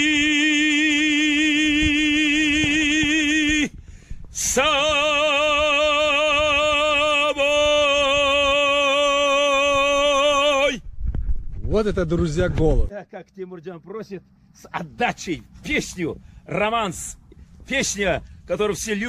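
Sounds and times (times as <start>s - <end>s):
man singing with vibrato: 0.0s - 3.8s, 4.4s - 10.8s.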